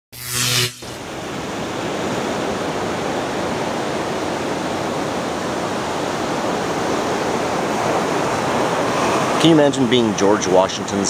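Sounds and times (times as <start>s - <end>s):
loud pitched sound: 0.1s - 1.4s
surf breaking on rocky shore: 1.1s - 11.0s.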